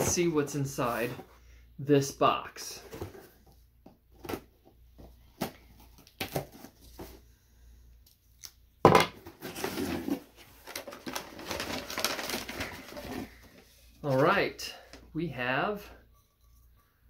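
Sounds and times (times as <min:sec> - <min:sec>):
rustling of box and packing: 0:00.0 - 0:01.4, 0:02.6 - 0:07.3, 0:09.0 - 0:15.1
cardboard tearing: 0:09.4 - 0:13.3.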